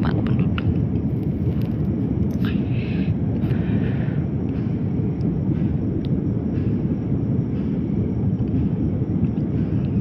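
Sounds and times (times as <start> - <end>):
jet cabin engine rumble: 0.0 - 10.0.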